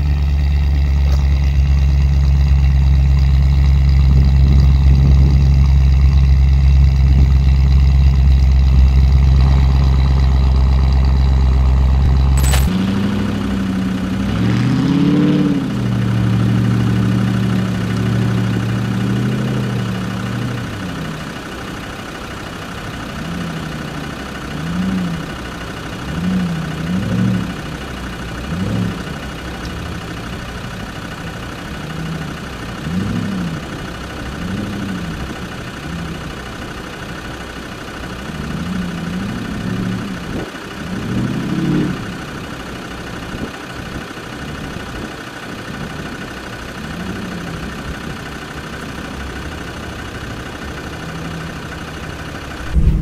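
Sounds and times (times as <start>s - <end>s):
engine revving: 0.0s - 21.3s, 23.1s - 31.2s, 31.8s - 36.3s, 38.3s - 42.4s, 49.6s - 53.0s.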